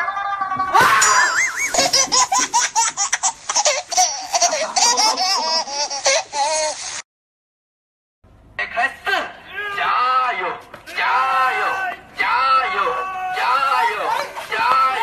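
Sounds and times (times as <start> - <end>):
high-pitched laughter: 0.0 - 7.0.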